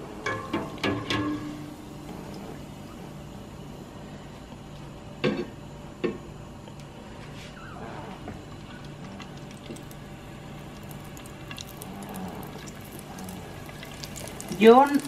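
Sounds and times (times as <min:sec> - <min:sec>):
hot oil bubbling and crackling: 0:09.2 - 0:15.0.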